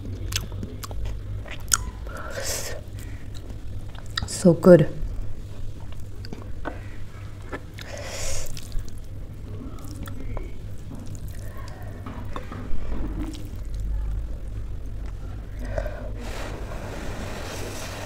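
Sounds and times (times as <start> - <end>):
steady low hum: 0.0 - 18.0
wet squishing of noodles: 5.3 - 15.6.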